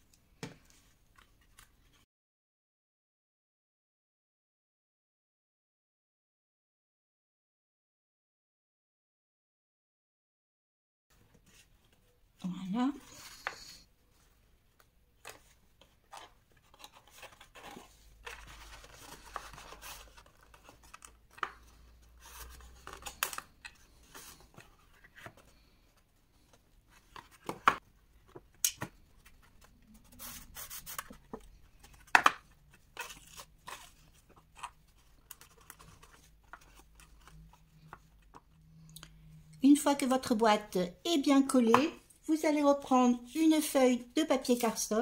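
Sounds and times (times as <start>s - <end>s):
card rustling and scraping: 15.2s - 38.5s.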